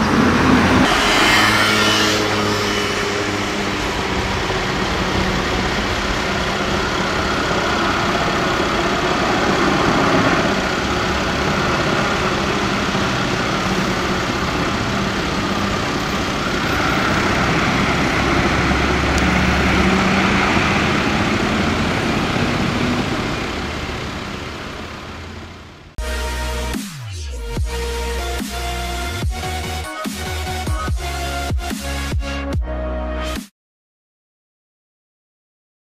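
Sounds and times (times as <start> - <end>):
fire engine diesel engine: 0.0 - 26.7
electronic music: 26.0 - 33.5.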